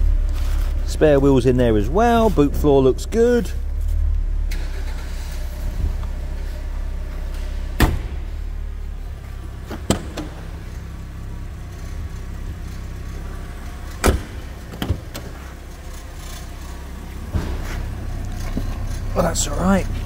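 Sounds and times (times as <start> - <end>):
steady low hum: 0.0 - 20.0
car door clunks and clicks: 7.3 - 8.4, 9.3 - 10.9, 13.8 - 15.6.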